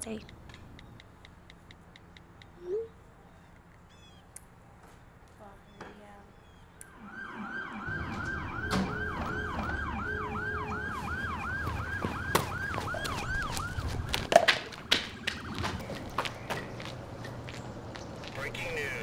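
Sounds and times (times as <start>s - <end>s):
siren yelping: 6.8s - 16.5s.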